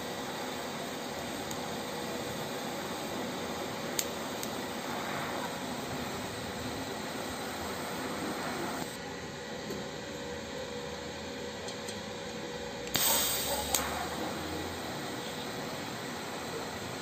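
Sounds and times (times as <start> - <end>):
loud hiss: 0.0 - 9.0, 12.9 - 17.0
welding hiss and hum: 0.0 - 17.0
sharp click: 12.9 - 14.0.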